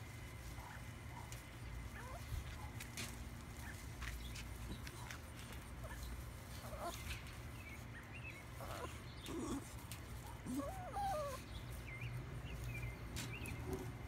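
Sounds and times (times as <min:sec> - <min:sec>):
birds chirping: 0:00.0 - 0:14.0
low steady hum: 0:00.0 - 0:14.0
small dog whining: 0:06.6 - 0:07.1, 0:08.6 - 0:09.8, 0:10.4 - 0:11.5.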